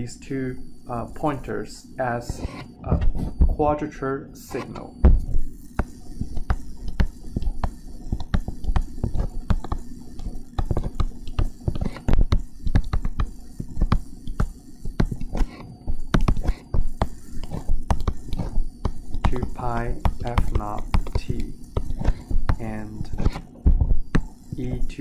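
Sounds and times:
stylus tapping on touchscreen: 5.1s - 22.6s.

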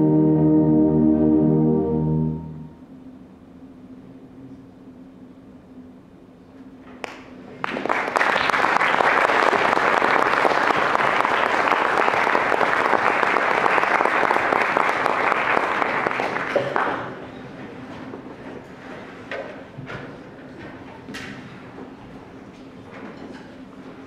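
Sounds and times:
audience applauding: 7.0s - 17.2s.

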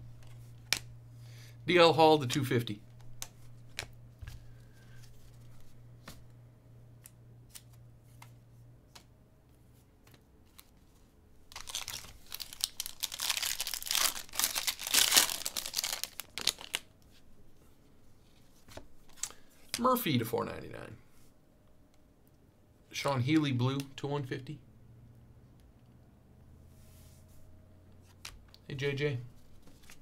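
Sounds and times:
wrapper tearing and crinkling: 11.5s - 16.9s.

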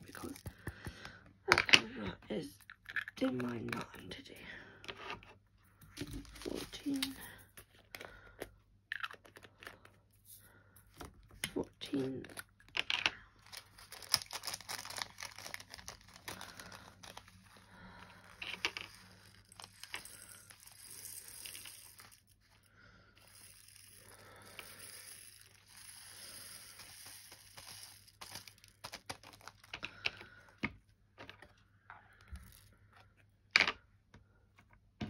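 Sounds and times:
plastic bags crinkling: 0.0s - 0.7s, 6.0s - 7.4s, 13.4s - 22.3s, 25.3s - 30.0s.

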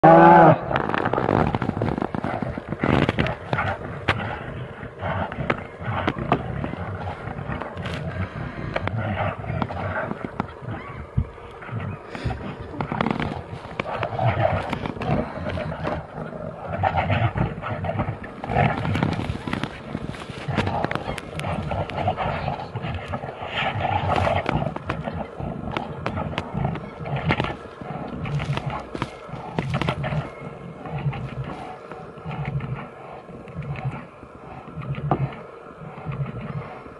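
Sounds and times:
bears growling and grunting: 0.0s - 36.9s
rough rustling: 0.2s - 36.8s
sharp clicks and cracks: 0.7s - 4.6s.

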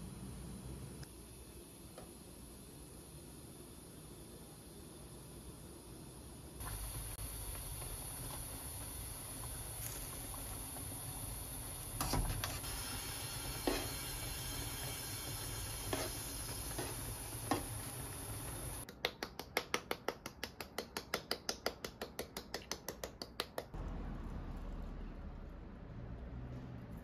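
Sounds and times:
sauce simmering in a frying pan: 1.1s - 18.8s.

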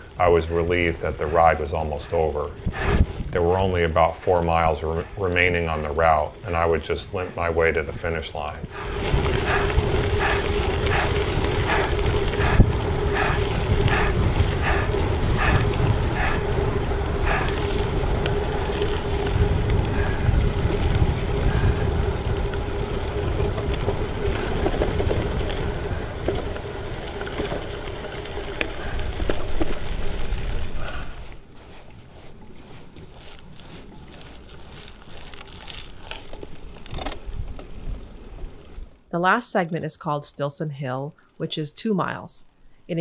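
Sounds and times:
wind buffeting microphone: 0.0s - 39.0s
bicycle rumble: 0.0s - 39.1s
steady hum: 8.7s - 29.8s.

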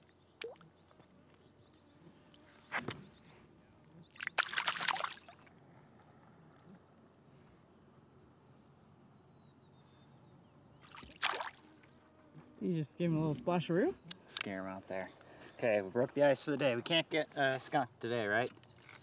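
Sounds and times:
water splashing: 4.2s - 5.4s, 10.9s - 11.8s.

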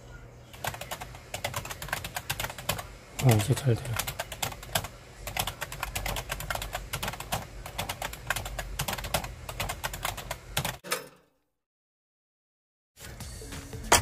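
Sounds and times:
keyboard typing: 0.5s - 10.8s.

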